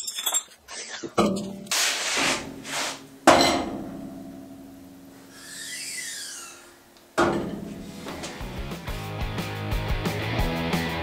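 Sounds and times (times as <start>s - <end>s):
ringing metal clang: 3.3s - 4.8s, 7.2s - 7.8s
metal knock: 7.2s - 7.8s.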